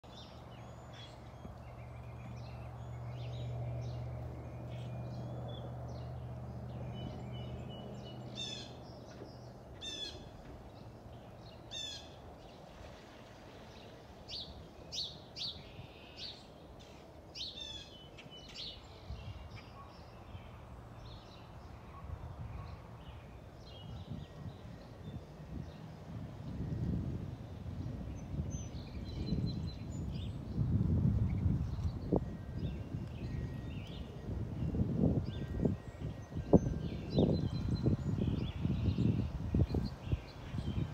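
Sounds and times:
small birds chirping: 0.0 - 13.0, 13.6 - 26.7, 27.8 - 40.9
jet airliner rumbling overhead: 1.1 - 14.1.

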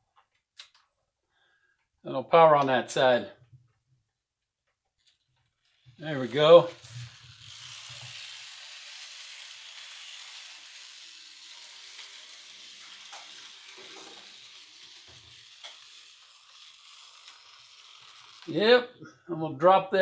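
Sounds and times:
model train whirring hiss: 5.7 - 18.6.

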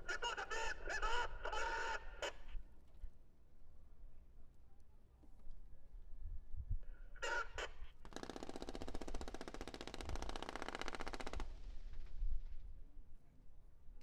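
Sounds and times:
machine-gun fire: 8.1 - 11.6.

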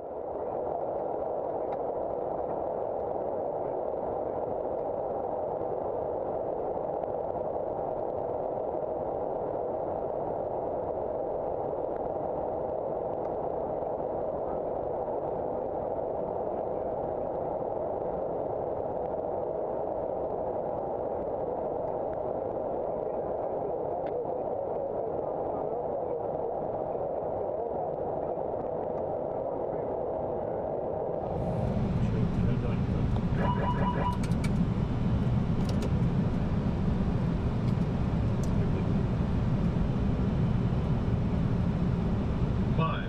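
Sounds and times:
airflow rushing in cockpit: 31.2 - 43.0.

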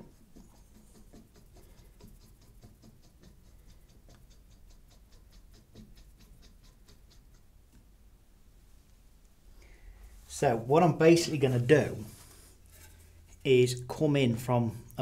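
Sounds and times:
faint even ticking: 0.6 - 8.0.

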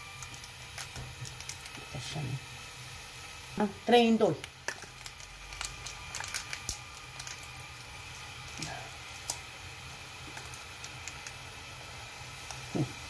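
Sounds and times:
foil sachets crinkling: 0.0 - 2.2, 4.4 - 11.5.

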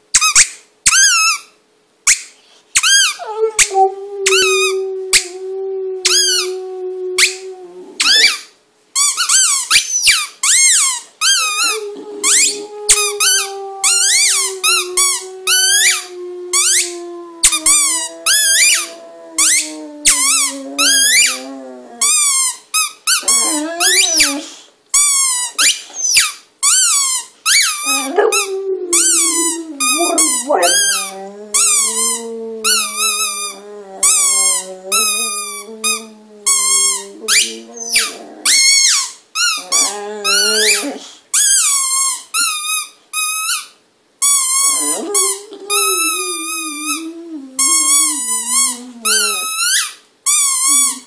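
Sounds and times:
dog howling: 3.2 - 8.2, 11.6 - 22.2, 23.2 - 24.4, 27.8 - 38.9, 44.8 - 49.6
high-pitched warbling squeaks: 25.0 - 41.7.

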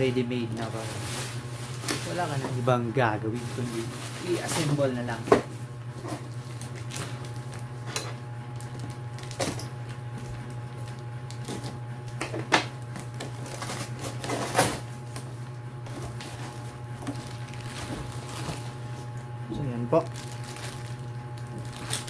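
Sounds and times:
steady low hum: 0.0 - 22.0
tape tearing: 20.1 - 22.0.

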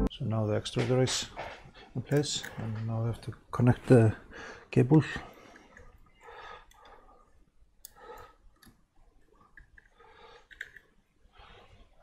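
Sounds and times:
soft fumbling sounds: 0.6 - 4.2.

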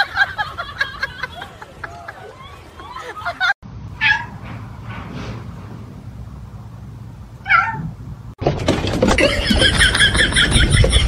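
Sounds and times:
cat meowing: 7.4 - 7.9.

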